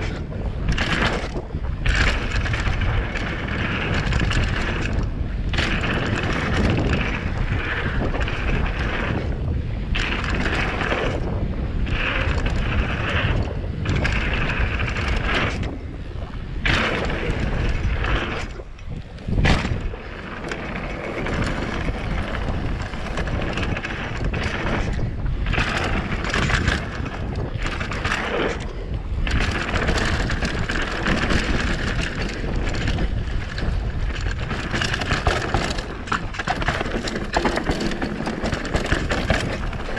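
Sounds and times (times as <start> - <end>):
bike tyres rolling over dirt: 0.0 - 39.9
wind on microphone: 0.0 - 39.9.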